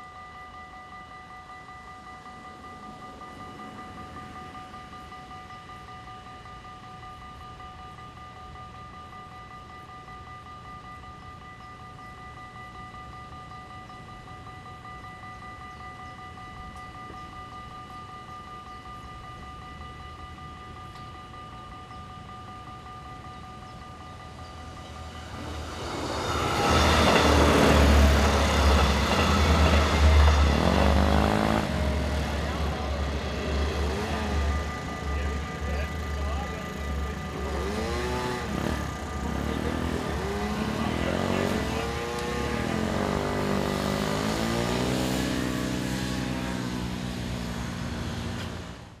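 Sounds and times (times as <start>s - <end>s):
diesel train passing with deep rumble: 0.0s - 49.0s
level crossing warning bell: 0.0s - 49.0s
motorcycle engines pulling away: 25.3s - 49.0s.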